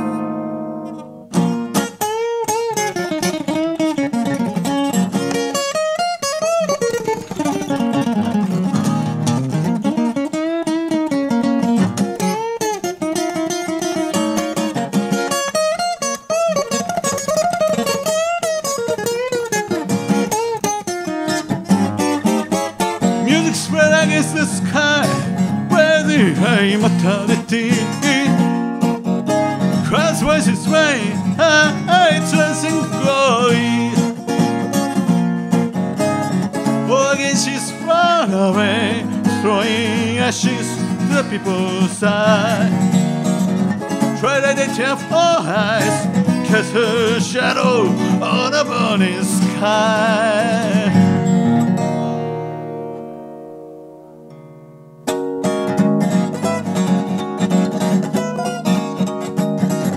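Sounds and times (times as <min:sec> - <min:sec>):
acoustic guitar strumming: 0:00.0 - 0:59.9
man singing: 0:23.0 - 0:28.6, 0:29.6 - 0:34.6, 0:36.6 - 0:43.1, 0:43.8 - 0:51.3.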